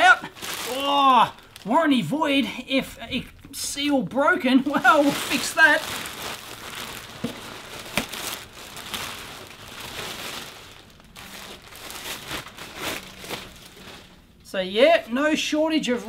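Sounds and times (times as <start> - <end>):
plastic bag crinkling: 0.0 - 1.7, 4.6 - 14.4.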